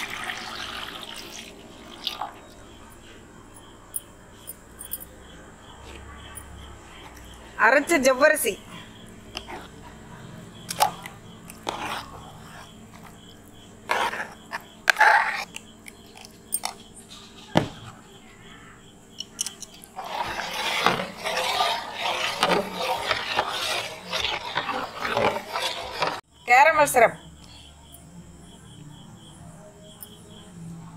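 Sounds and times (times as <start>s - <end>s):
spoon scraping steel bowl: 5.8s - 10.0s, 10.6s - 17.5s, 19.4s - 26.2s.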